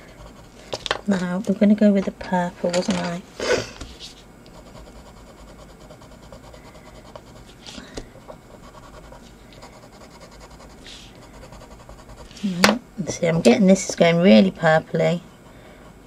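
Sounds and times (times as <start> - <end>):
pencil scratching on paper: 0.0 - 0.6, 4.5 - 12.6.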